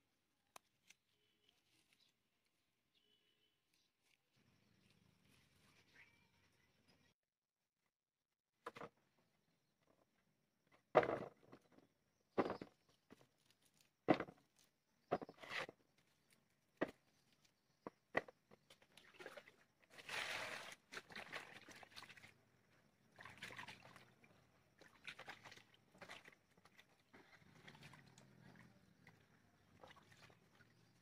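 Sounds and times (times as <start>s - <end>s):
hands sloshing in water: 18.8s - 22.4s, 23.1s - 31.0s.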